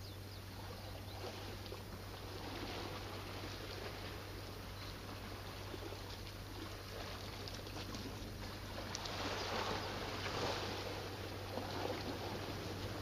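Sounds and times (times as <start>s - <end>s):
small waves washing on rocks: 5.3s - 13.0s
faint ticks: 7.4s - 9.2s.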